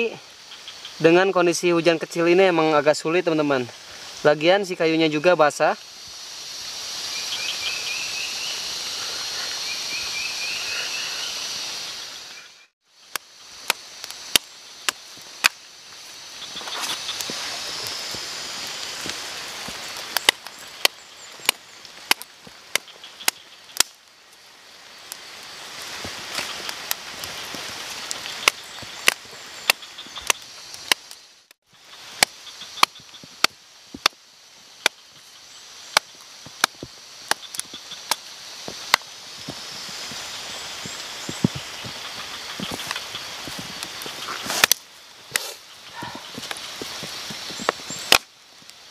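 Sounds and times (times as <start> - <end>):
fire hissing: 0.0 - 48.9
campfire crackling and popping: 12.9 - 48.9.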